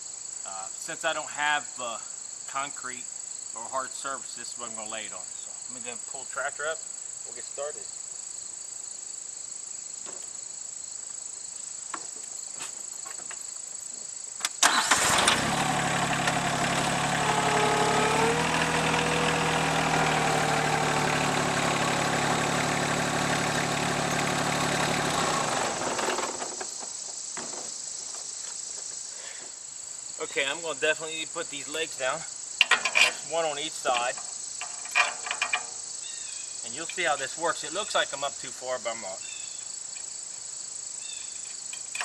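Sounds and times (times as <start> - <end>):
crickets chirping: 0.0 - 15.2, 24.0 - 42.0
engine whine: 14.6 - 26.6
tractor engine running: 14.6 - 26.6.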